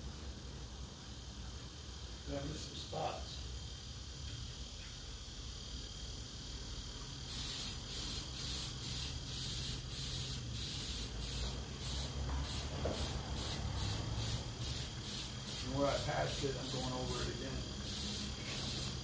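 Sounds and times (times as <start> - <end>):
spray paint can hissing bursts: 7.2 - 19.0.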